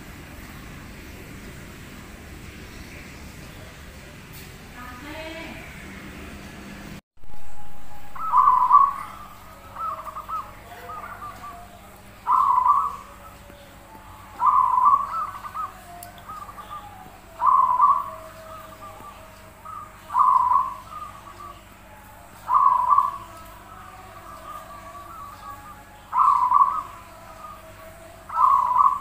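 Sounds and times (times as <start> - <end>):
dove cooing: 8.1 - 29.0.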